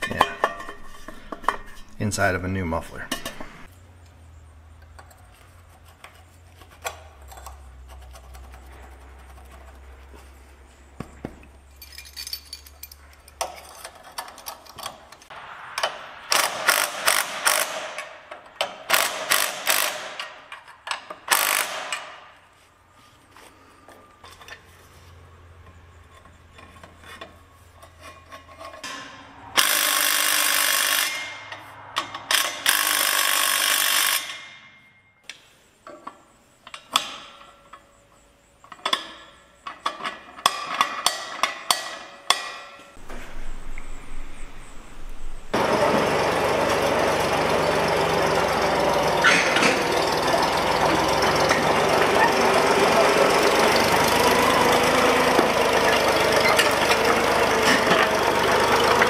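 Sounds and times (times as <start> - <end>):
cordless impact tool striking: 15.8 - 20.4.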